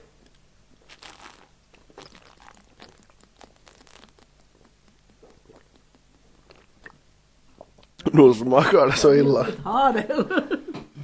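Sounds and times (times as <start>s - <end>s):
person gulping and swallowing: 0.8s - 8.0s.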